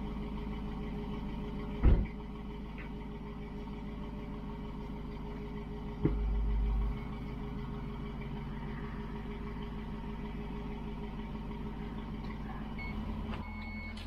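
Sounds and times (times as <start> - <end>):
car engine idling: 0.0 - 14.0
low engine rumble: 0.0 - 14.0.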